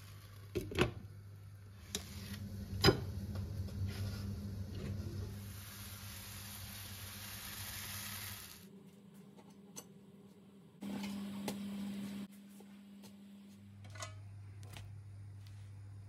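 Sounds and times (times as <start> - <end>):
steady low hum: 0.8 - 6.2
potato pancake sizzling in pan: 5.2 - 8.6.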